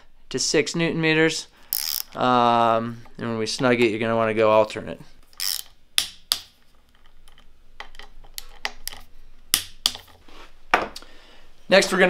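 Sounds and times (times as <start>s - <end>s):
ratchet driver clicking: 1.7s - 2.2s, 5.3s - 5.7s.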